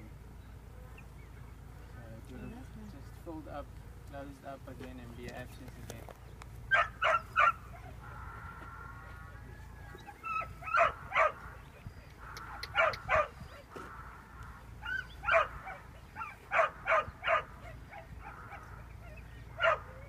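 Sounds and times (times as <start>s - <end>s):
dog barking: 6.7s - 8.0s, 10.1s - 11.5s, 12.3s - 13.8s, 14.8s - 20.0s.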